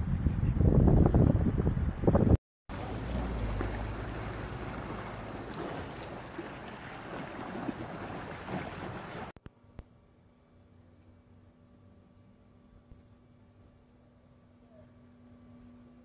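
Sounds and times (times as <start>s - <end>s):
wind buffeting microphone: 0.0s - 9.3s
floodwater rushing: 2.7s - 9.3s
faint steady hum: 9.4s - 16.0s.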